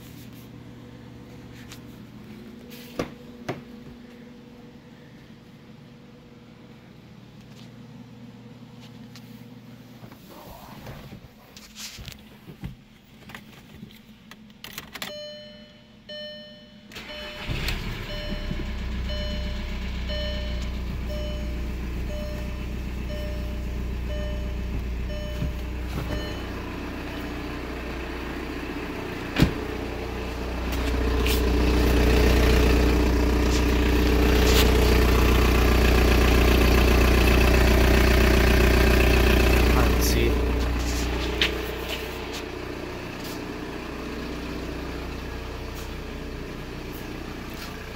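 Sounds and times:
diesel engine starting and idling: 14.9s - 47.9s
dashboard warning chime beeping: 15.0s - 29.4s, 39.5s - 42.3s.

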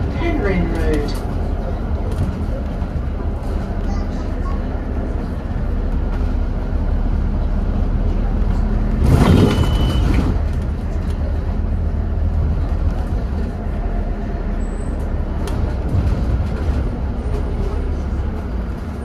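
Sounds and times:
bus engine rumble: 0.0s - 19.0s
road and body noise: 0.0s - 19.0s.

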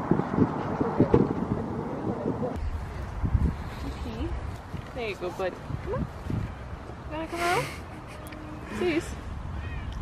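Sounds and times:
wind buffeting microphone: 0.0s - 10.0s
footsteps on pavement: 3.0s - 7.1s.

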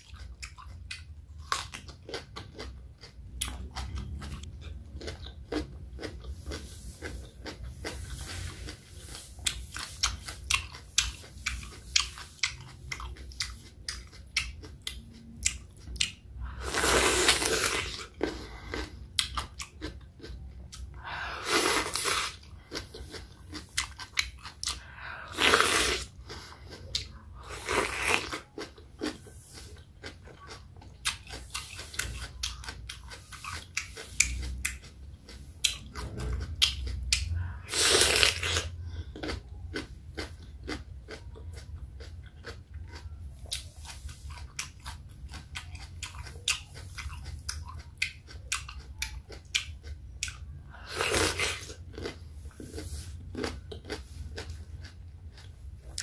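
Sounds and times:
crunching cucumber bites: 21.5s - 56.0s.

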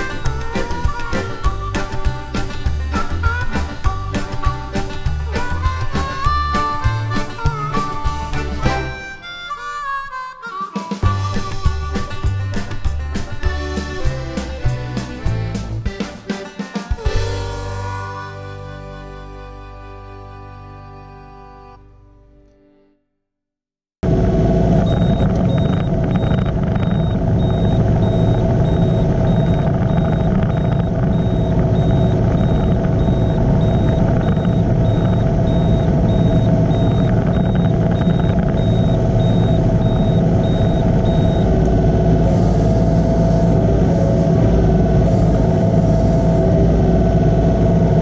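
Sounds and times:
diesel engine running: 0.0s - 9.3s, 11.0s - 16.4s, 17.0s - 21.6s, 24.0s - 48.0s
rapid high-pitched beeping: 24.9s - 42.2s.

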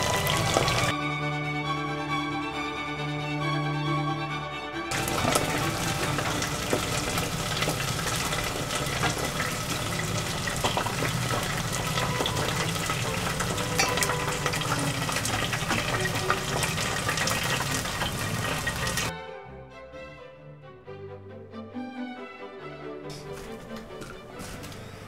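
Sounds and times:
deep-frying sizzle and pops: 0.0s - 0.9s, 4.9s - 19.1s.

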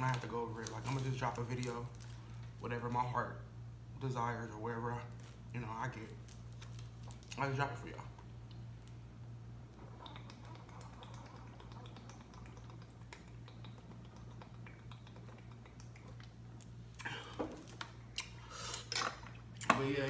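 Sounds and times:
plastic bottle crinkling: 0.0s - 2.5s, 5.1s - 7.6s
steady low hum: 0.0s - 20.0s.

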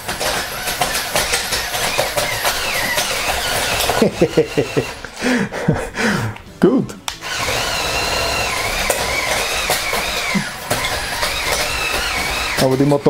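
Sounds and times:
tracks clattering over plastic bricks: 0.0s - 4.8s, 8.0s - 13.0s
toy motor and gear whine: 0.2s - 5.0s, 7.2s - 13.0s.

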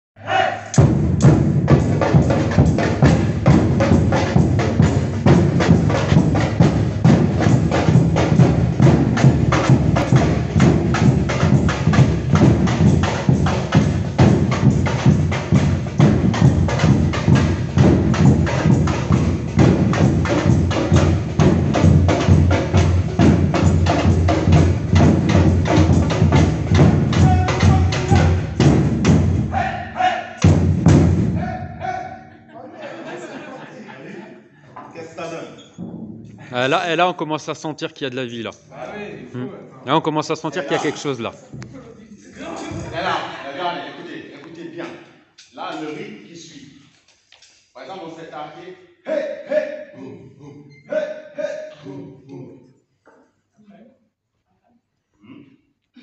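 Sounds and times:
rapid stick hits on drums: 0.7s - 29.4s
drum group playing: 0.7s - 32.3s, 35.7s - 37.1s, 40.4s - 43.3s
bass drums struck: 35.8s - 36.6s.

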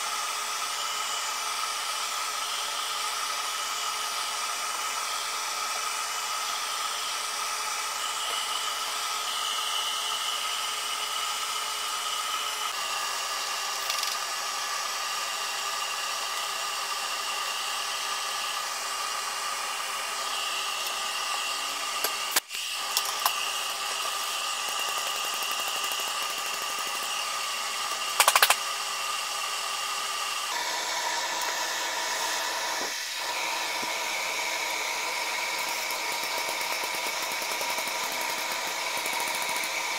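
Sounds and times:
wood lathe motor whine: 0.0s - 39.9s.

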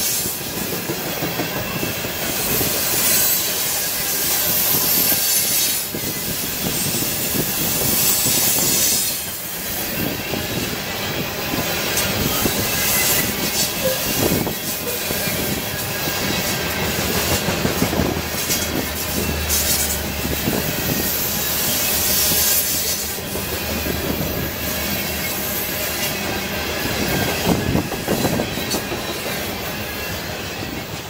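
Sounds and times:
train rail rumble: 0.0s - 31.0s
train wheel clatter: 0.0s - 31.0s.

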